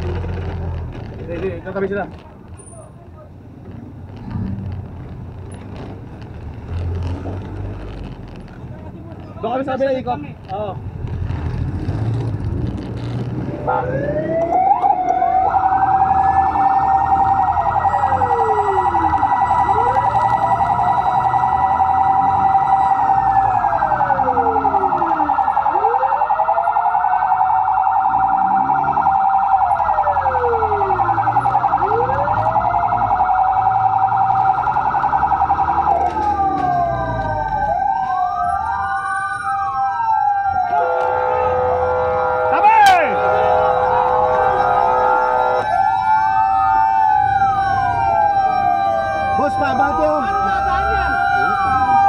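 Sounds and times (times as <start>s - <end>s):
wailing sirens: 13.4s - 52.0s.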